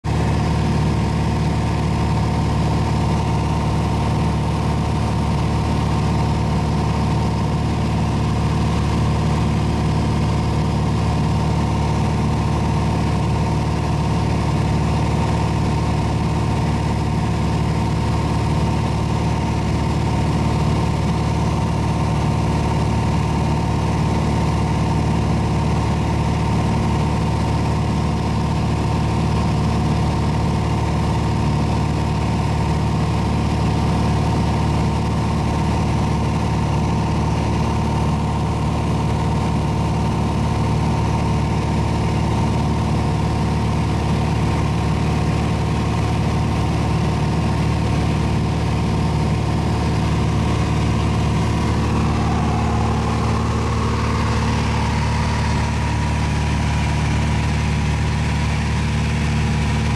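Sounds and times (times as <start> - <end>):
light aircraft engine droning: 48.6 - 59.9.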